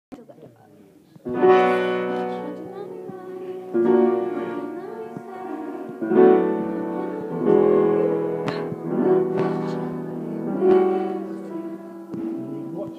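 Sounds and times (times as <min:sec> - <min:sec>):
piano chords: 0:01.2 - 0:12.9.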